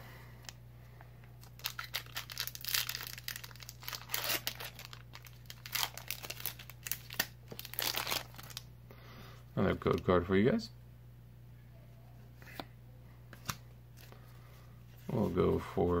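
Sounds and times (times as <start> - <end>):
foil wrapper tearing and crinkling: 1.4 - 8.7.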